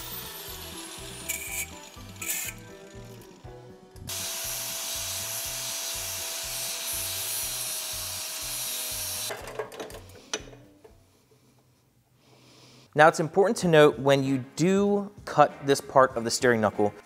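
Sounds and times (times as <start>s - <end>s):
angle grinder cutting metal: 0.0s - 9.3s.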